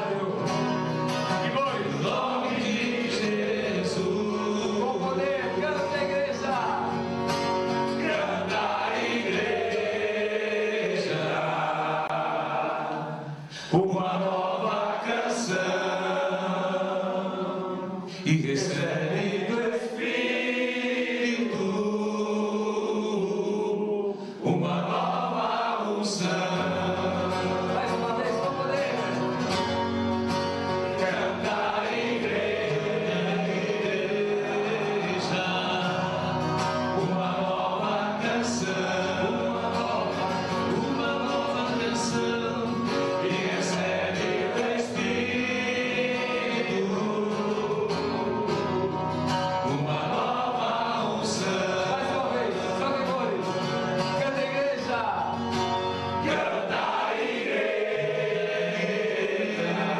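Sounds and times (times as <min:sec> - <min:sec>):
man singing into a microphone: 0:00.0 - 0:00.7, 0:01.3 - 0:07.0, 0:08.0 - 0:20.2, 0:20.8 - 0:29.3, 0:30.8 - 0:49.0, 0:49.6 - 0:55.3
men singing a worship song: 0:00.0 - 0:29.8, 0:30.6 - 0:55.3, 0:56.1 - 0:59.9.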